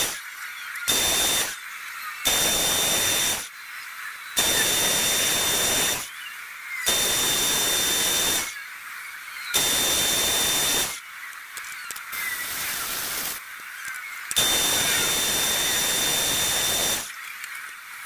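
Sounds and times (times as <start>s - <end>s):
metal lathe cutting with whistle: 0.9s - 1.6s, 2.3s - 3.5s, 4.4s - 6.1s, 6.9s - 8.5s, 9.6s - 11.0s, 14.4s - 17.1s.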